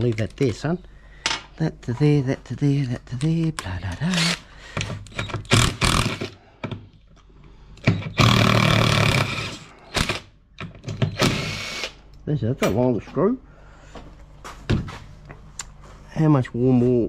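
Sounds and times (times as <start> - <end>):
impact driver hammering: 5.2 - 6.4.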